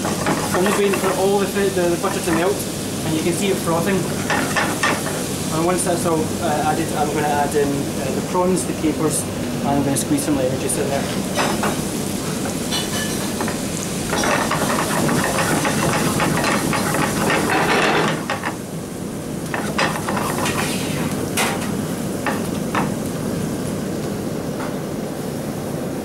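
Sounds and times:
butter sizzling in a frying pan: 0.0 - 7.4, 11.2 - 18.7.

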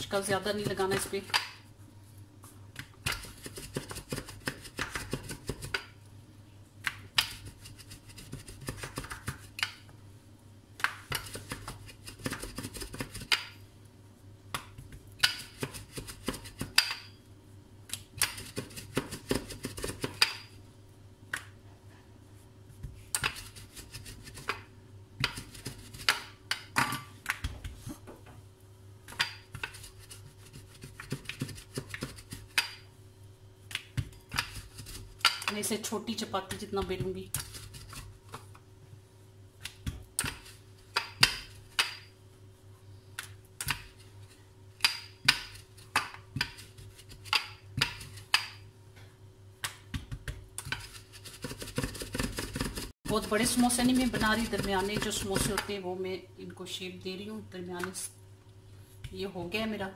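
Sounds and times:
metal rolling pin on stone countertop: 49.9 - 55.7.

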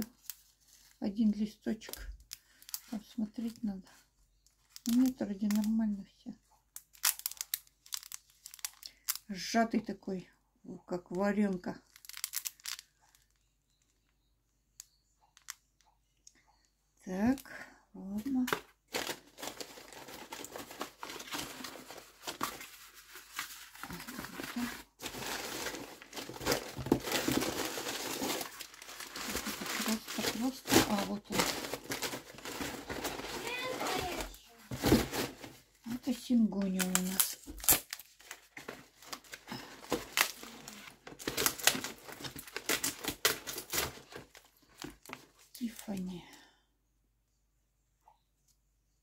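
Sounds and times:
cardboard rustling and crinkling: 18.2 - 46.0.

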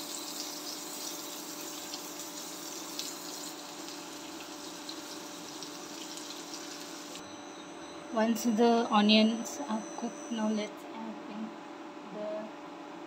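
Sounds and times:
onion sizzling in hot oil: 0.0 - 7.2
faint steady hum: 0.0 - 13.0.

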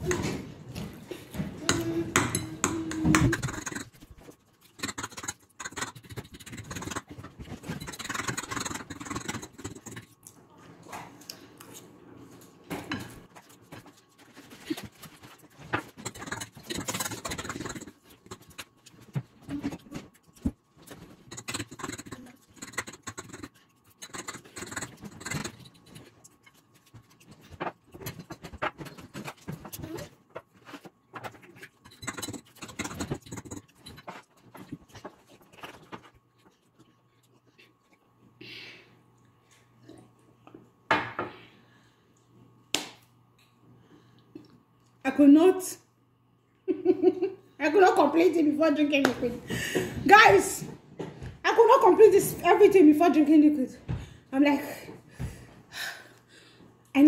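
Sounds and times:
chewing: 1.1 - 11.9, 12.9 - 38.4
fork scraping on plate: 20.9 - 27.2.

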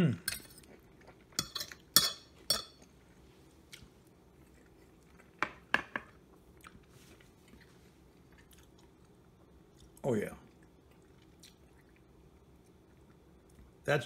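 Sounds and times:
metal fork clinking on plate: 0.3 - 0.6, 1.4 - 2.8.

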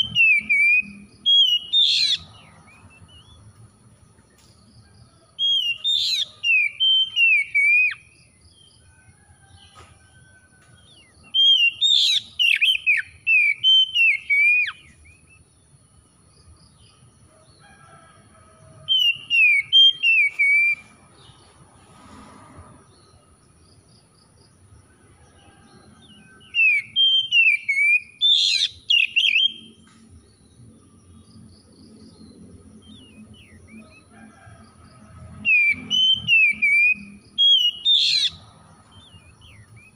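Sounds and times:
bird singing whistled phrases: 0.0 - 2.3, 5.5 - 8.0, 11.4 - 15.1, 26.5 - 29.7, 35.5 - 38.4.

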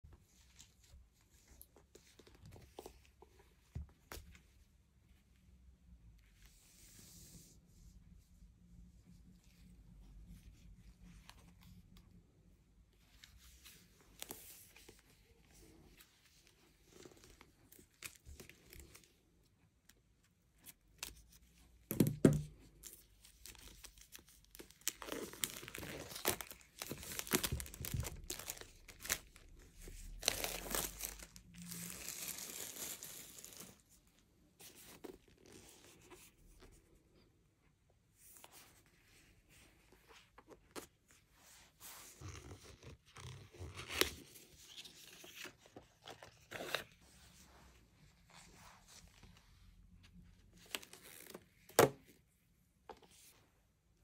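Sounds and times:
plastic wrap crinkling: 24.5 - 33.8.

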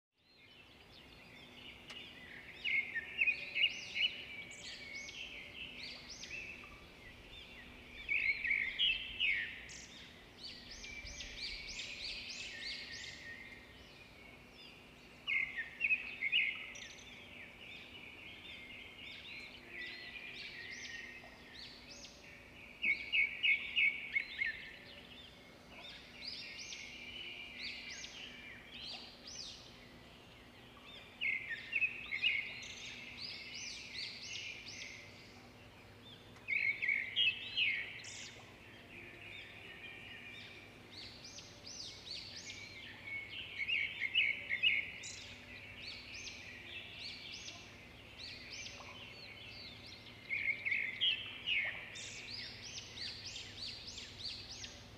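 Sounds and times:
birds chirping and trilling: 0.2 - 54.9.

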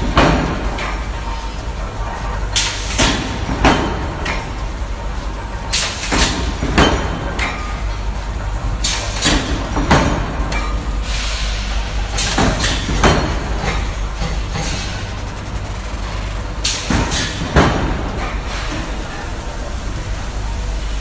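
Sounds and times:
steady low factory hum: 0.0 - 21.0
metalworking clanks and bangs: 12.1 - 19.2.

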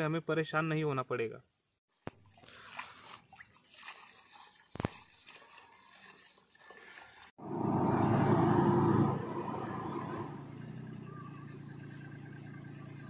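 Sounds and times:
liquid trickling through strainer: 2.0 - 7.3.

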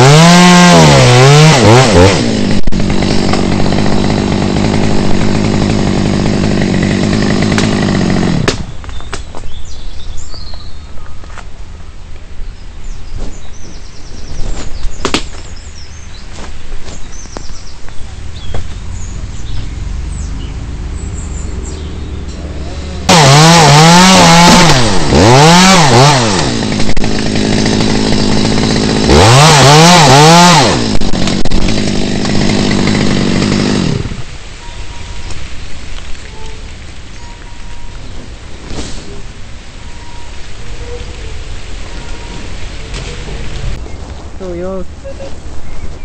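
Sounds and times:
chainsaw revving cutting wood: 0.0 - 8.7, 22.5 - 34.4.

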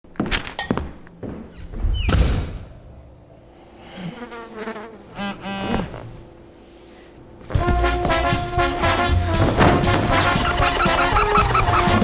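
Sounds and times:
fly buzzing: 3.8 - 6.2, 7.5 - 12.0.

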